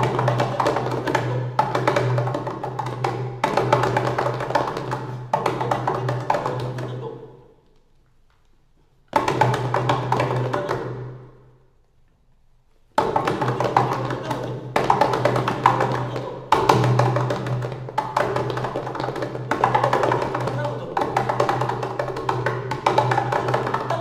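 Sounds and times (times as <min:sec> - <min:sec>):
hands drumming on wooden table: 0:00.0 - 0:06.9, 0:13.0 - 0:24.0.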